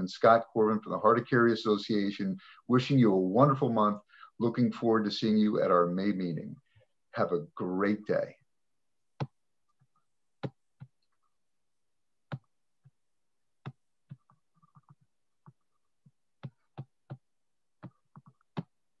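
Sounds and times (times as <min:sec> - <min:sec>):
light irregular clicks and taps: 0:09.2 - 0:11.2, 0:13.6 - 0:18.8.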